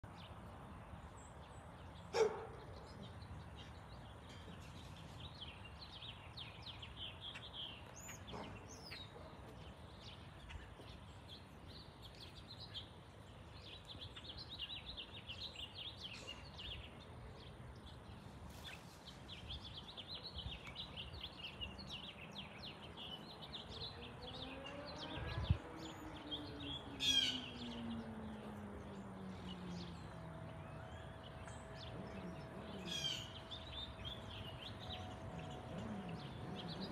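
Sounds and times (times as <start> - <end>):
small birds chirping: 0.0 - 36.9
engine passing by: 22.0 - 36.9.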